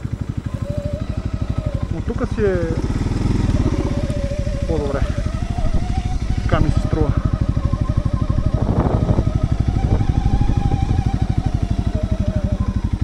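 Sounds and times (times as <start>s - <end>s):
engine running at low revs: 0.0s - 13.0s
whine: 0.0s - 13.0s.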